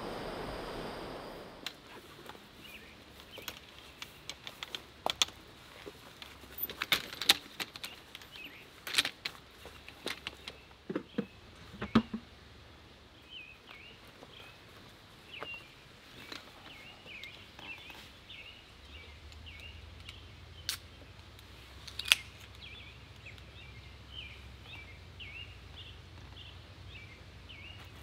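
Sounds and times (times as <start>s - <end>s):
small birds chirping: 0.0s - 4.4s, 7.7s - 8.8s, 13.1s - 28.0s
metal folding chair clicks and clinks: 6.5s - 9.2s.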